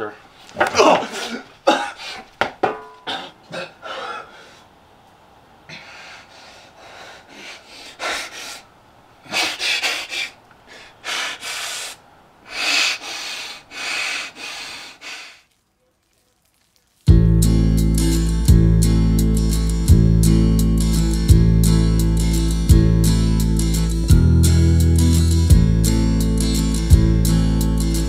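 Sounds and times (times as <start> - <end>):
man breathing heavily: 3.2 - 4.8, 5.7 - 15.5.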